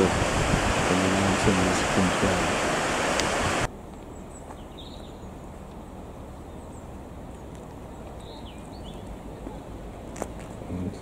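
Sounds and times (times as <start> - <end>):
loud rushing noise: 0.0 - 3.7
high bird chirps: 4.1 - 5.4, 7.9 - 9.2.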